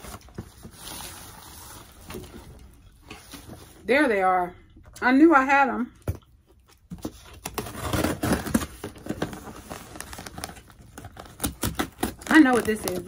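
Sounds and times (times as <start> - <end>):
scissors cutting cardboard: 7.0 - 9.4, 10.4 - 13.0.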